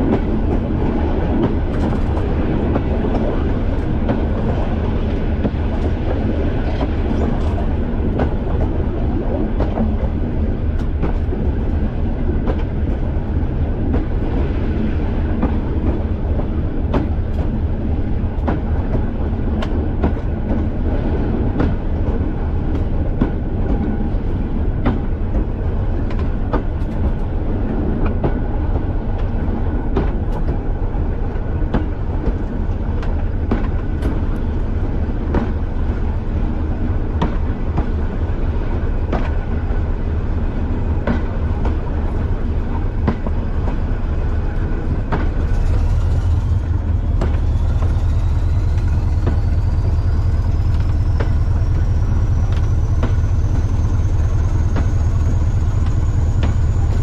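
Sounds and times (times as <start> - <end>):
train wheels rumbling: 0.0 - 57.0
wheels clicking over rail joints: 15.3 - 57.0
diesel engine throbbing: 39.4 - 57.0.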